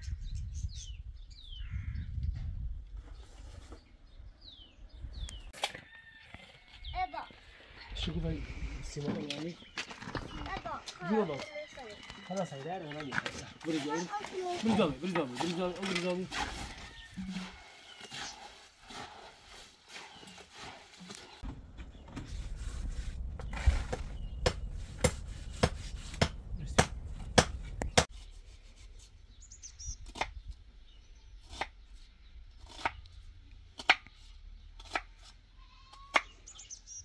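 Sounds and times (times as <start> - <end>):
sharp knocks: 23.9 - 28.1.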